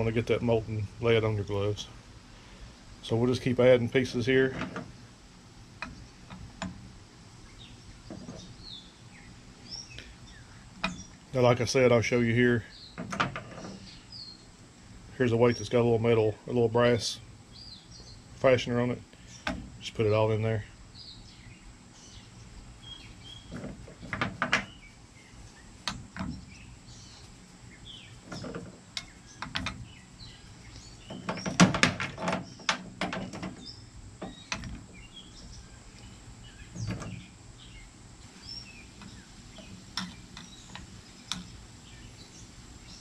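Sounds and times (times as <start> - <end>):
faint bird chirps: 7.4 - 13.0, 19.1 - 31.6, 33.6 - 43.0.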